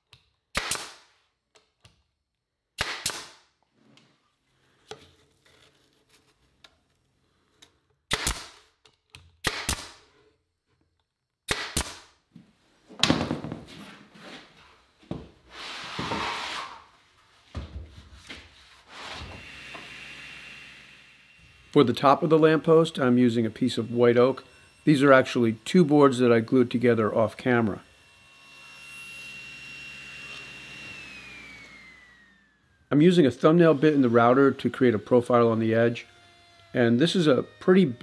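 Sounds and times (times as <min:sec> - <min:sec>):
nail gun firing: 0:00.5 - 0:01.1, 0:02.8 - 0:03.5, 0:08.1 - 0:08.7, 0:09.4 - 0:10.0, 0:11.5 - 0:12.1, 0:13.0 - 0:13.6.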